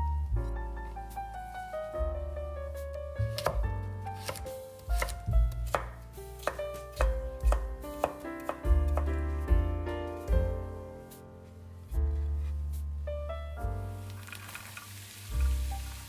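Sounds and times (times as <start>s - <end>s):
soft piano music: 0.0s - 16.0s
knife chopping on cutting board: 3.3s - 9.2s.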